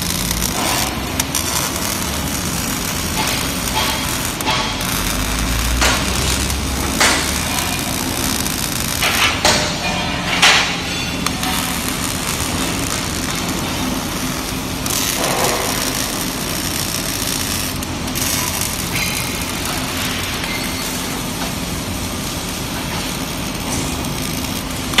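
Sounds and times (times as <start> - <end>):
welding arc crackling hiss: 0.0 - 25.0.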